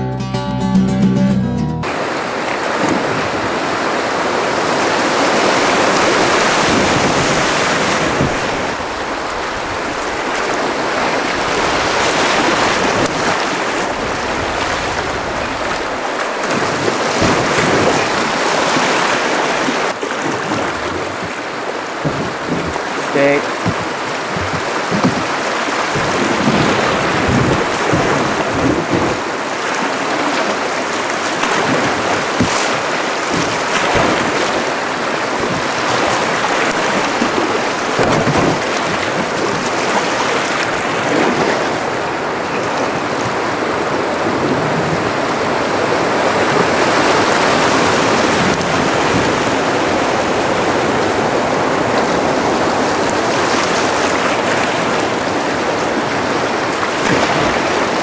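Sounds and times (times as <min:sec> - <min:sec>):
roar of river rapids: 0:01.8 - 0:58.0
sharp hits on canoe: 0:20.2 - 0:40.8.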